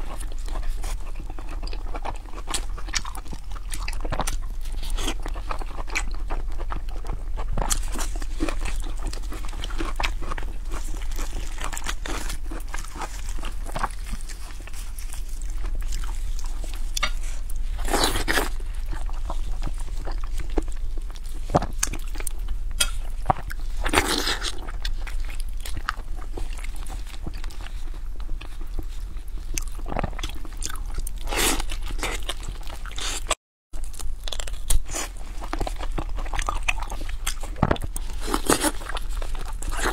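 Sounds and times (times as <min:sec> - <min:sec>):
low steady hum: 0:00.0 - 0:39.9
wet chewing and smacking: 0:00.0 - 0:39.9.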